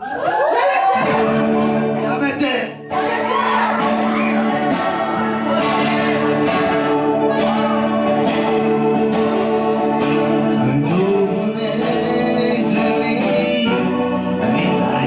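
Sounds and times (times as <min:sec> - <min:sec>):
punk band playing: 0:01.0 - 0:15.0
man singing: 0:05.2 - 0:15.0.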